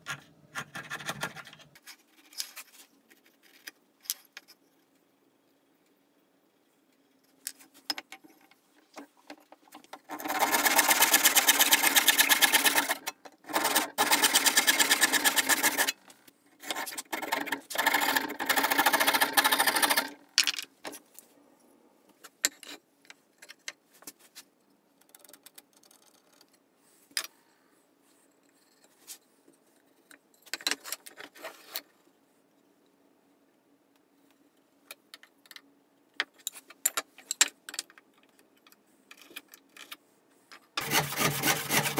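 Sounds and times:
hand saw cutting wood: 0:10.1 - 0:16.0, 0:40.8 - 0:41.9.

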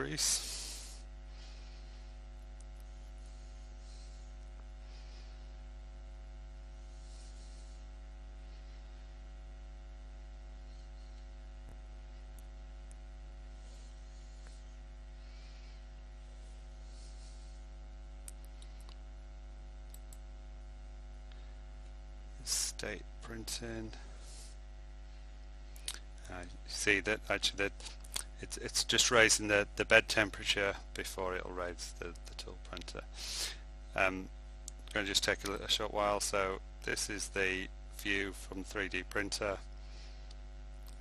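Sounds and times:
electrical mains hum: 0:00.0 - 0:41.0.

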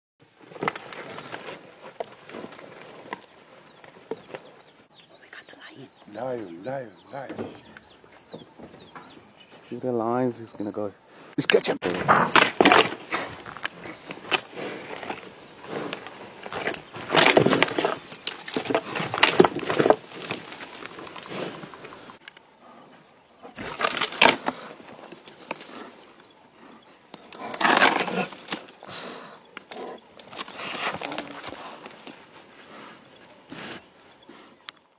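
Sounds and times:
lioness growling: 0:11.9 - 0:31.9.

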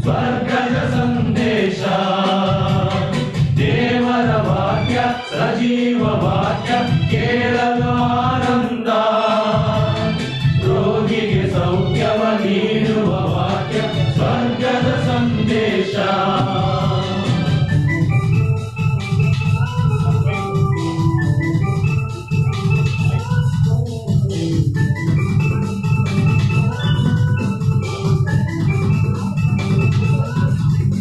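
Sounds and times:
men's choir singing a hymn: 0:00.0 - 0:17.7
organ playing: 0:00.0 - 0:31.0.

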